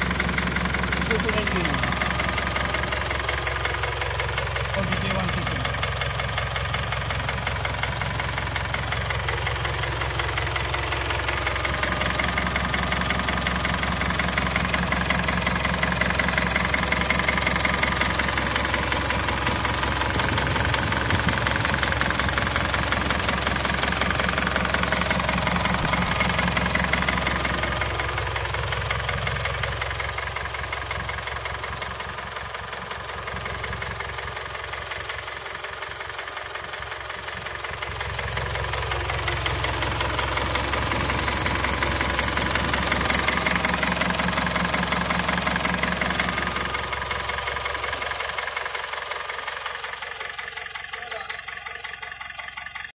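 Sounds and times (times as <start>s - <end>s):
diesel engine clattering: 0.0s - 52.9s.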